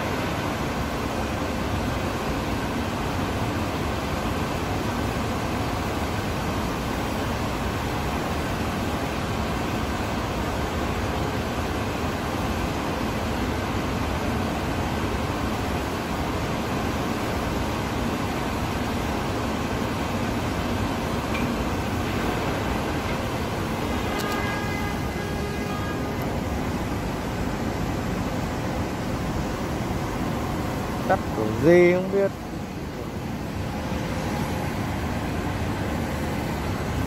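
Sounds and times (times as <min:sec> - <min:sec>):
ventilation noise: 0:00.0 - 0:37.0
machinery noise: 0:20.4 - 0:37.0.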